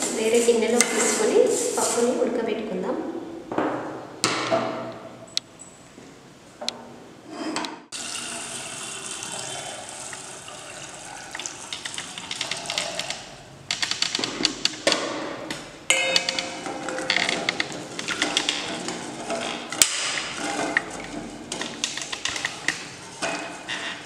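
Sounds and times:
water pouring into a pot: 0:07.9 - 0:12.8
cookware knocking and clinking: 0:15.9 - 0:17.5.

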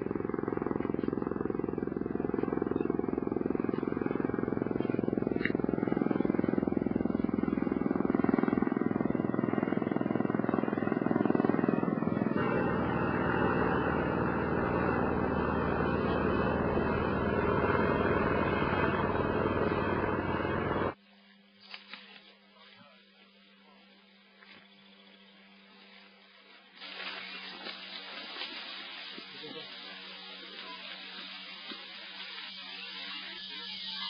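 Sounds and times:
helicopter rotor and engine: 0:00.0 - 0:21.0.

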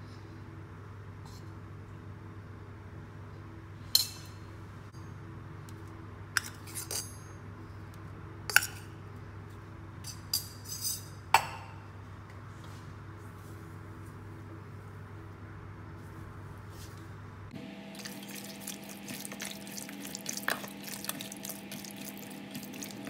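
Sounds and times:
steady low hum: 0:11.8 - 0:23.0.

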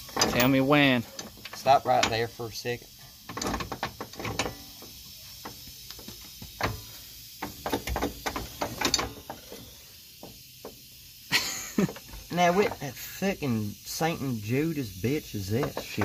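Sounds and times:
metallic clanks of hand tools: 0:00.1 - 0:02.3.

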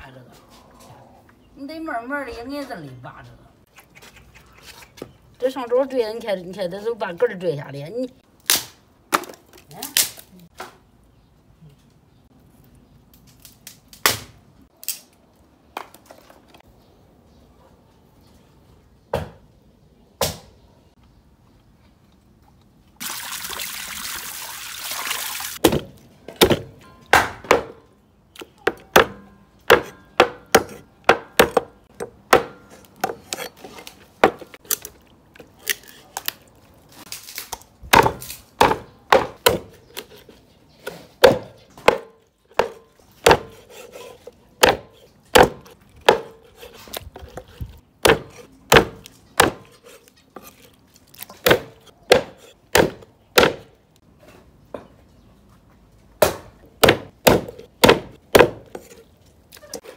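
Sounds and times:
water pouring into steel bowl: 0:23.0 - 0:25.6
cleaver chopping on wooden board: 0:25.6 - 0:27.8, 0:28.7 - 0:33.5, 0:37.9 - 0:40.0, 0:41.2 - 0:49.8, 0:51.4 - 0:53.7, 0:56.2 - 0:59.0.

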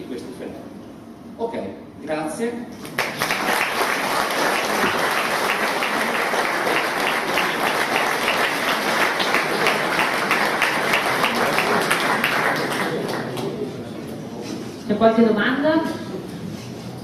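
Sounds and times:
audience applauding: 0:02.8 - 0:13.7.

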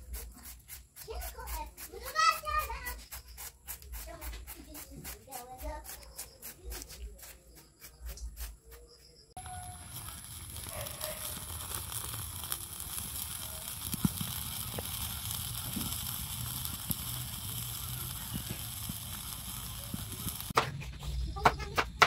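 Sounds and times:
fish sizzling on a grill: 0:00.0 - 0:05.7, 0:09.4 - 0:20.6
fire crackling and popping: 0:09.4 - 0:22.0.

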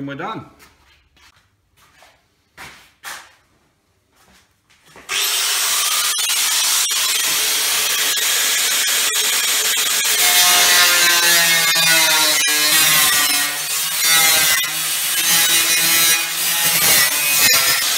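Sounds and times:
angle grinder cutting steel: 0:05.1 - 0:17.9.

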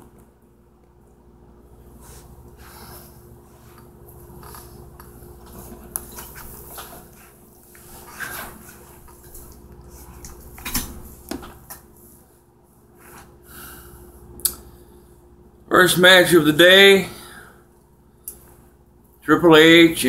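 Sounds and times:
faint steady hum: 0:00.0 - 0:20.0.

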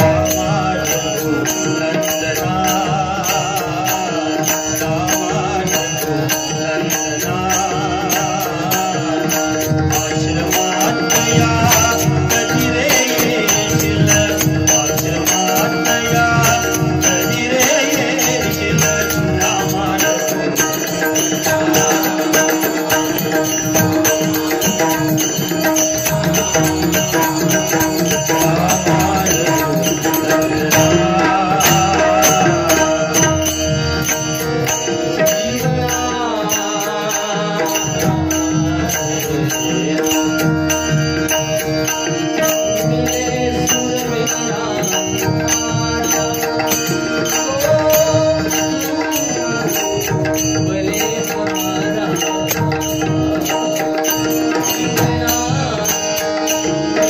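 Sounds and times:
hand drum: 0:00.0 - 0:01.9
men singing devotional song: 0:00.0 - 0:57.0.

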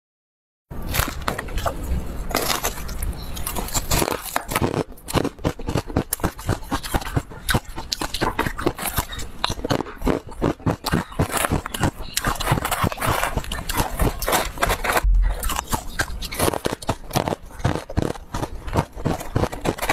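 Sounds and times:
ice crunching and chewing: 0:00.8 - 0:19.9
spoon scraping ice in plastic bowl: 0:11.2 - 0:15.1, 0:17.7 - 0:19.9.

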